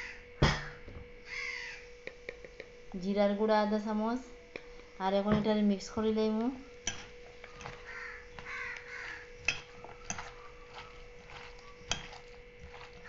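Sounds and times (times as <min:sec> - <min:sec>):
harsh bird calls: 0:01.3 - 0:01.8, 0:07.5 - 0:11.9
hand mixing batter in metal bowl: 0:05.0 - 0:13.0.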